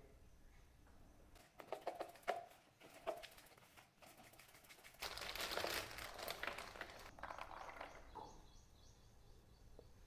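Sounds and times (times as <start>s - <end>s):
plastic packaging crinkling: 4.3s - 8.0s.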